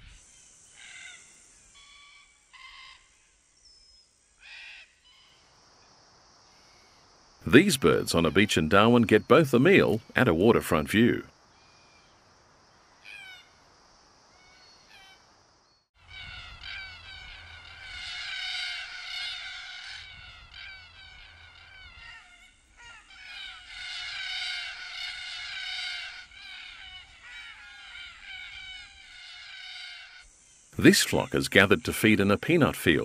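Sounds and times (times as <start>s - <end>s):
cockatoo flock calling: 0.0s - 3.2s, 13.0s - 13.6s, 14.4s - 15.3s, 16.0s - 33.0s.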